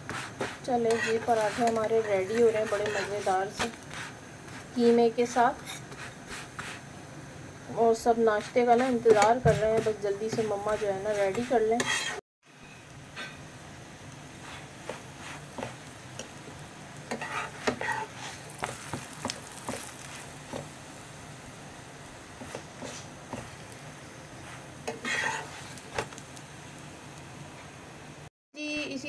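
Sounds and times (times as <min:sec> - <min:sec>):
flatbread frying in oil: 0:00.0 - 0:28.3
metal spatula scraping pan: 0:00.1 - 0:06.5, 0:08.3 - 0:12.2, 0:17.1 - 0:18.8, 0:24.5 - 0:25.8.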